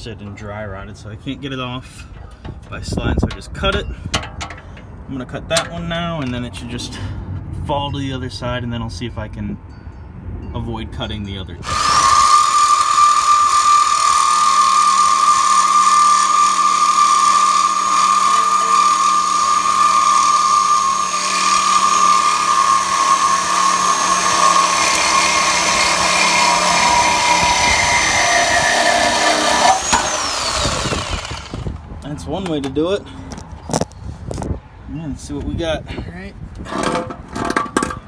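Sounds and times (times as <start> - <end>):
reciprocating saw cutting metal: 11.6 - 31.8.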